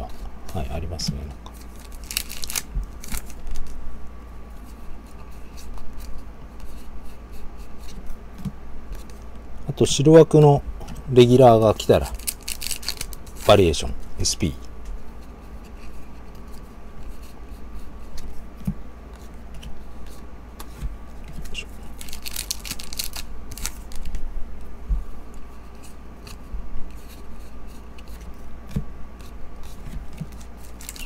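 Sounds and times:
trading cards being shuffled: 1.6 - 3.8, 11.7 - 13.8, 19.1 - 24.2, 29.2 - 31.0.

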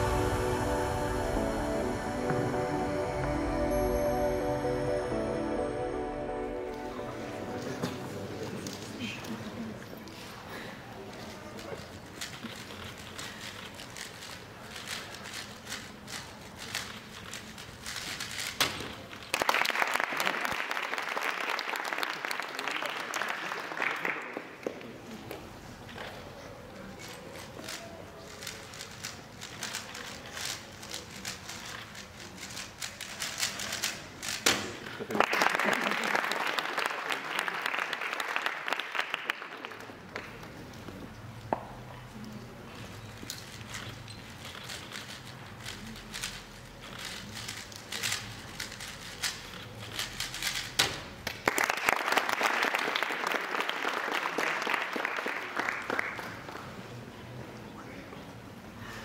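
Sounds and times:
plastic puzzle cube clicking: 11.8 - 18.9, 43.2 - 51.0
audience applause: 19.2 - 24.6, 34.9 - 40.3, 51.3 - 56.8.

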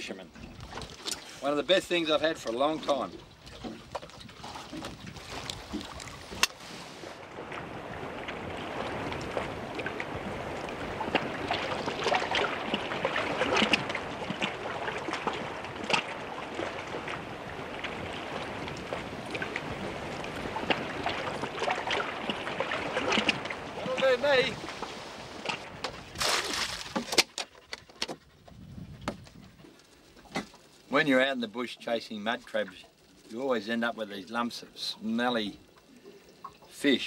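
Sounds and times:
sea splashing against boat: 0.0 - 27.4
wind noise: 0.4 - 1.0, 3.3 - 29.7.

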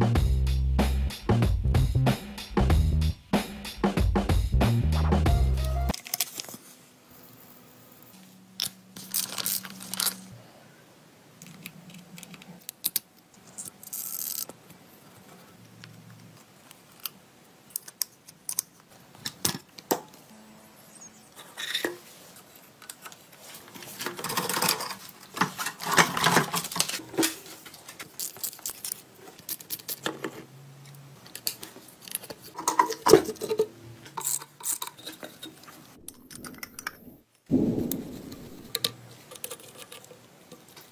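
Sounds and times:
metal parts clicking and clinking: 8.6 - 10.3, 11.4 - 14.5, 24.0 - 30.4, 31.2 - 37.0, 38.7 - 40.9.

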